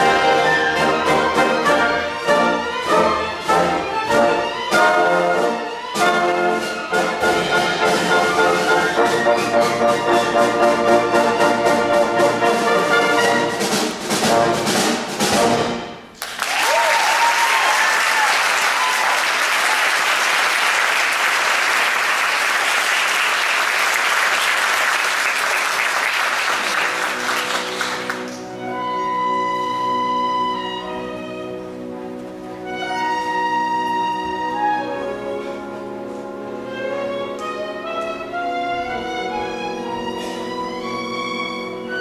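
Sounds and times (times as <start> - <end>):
orchestra with brass playing: 0.0 - 16.2, 20.1 - 42.0
audience whooping: 16.2 - 28.3
audience applauding: 16.2 - 28.5.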